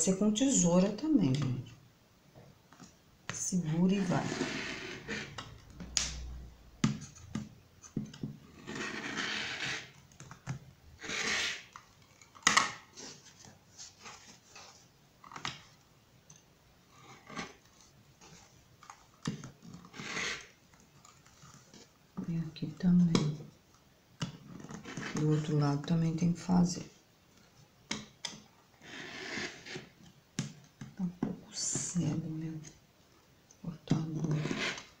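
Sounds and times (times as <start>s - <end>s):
rotary cutter rasping through fabric: 4.0s - 5.4s, 8.6s - 10.0s, 11.0s - 11.8s, 19.8s - 20.5s, 28.8s - 29.9s, 34.2s - 35.0s.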